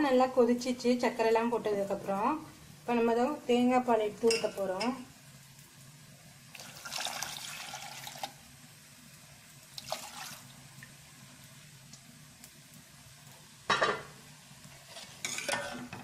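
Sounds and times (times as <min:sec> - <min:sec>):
liquid pouring and splashing: 0:06.5 - 0:08.4, 0:09.7 - 0:10.9.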